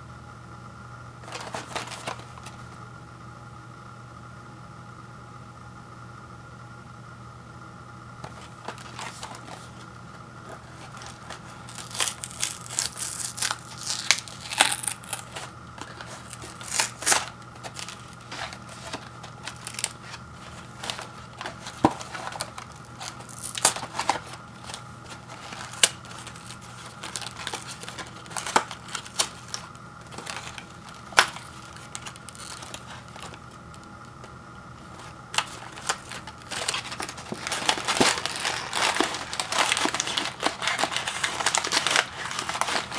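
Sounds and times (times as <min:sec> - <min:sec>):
cardboard box tearing: 0:10.5 - 0:33.4, 0:34.9 - 0:42.9.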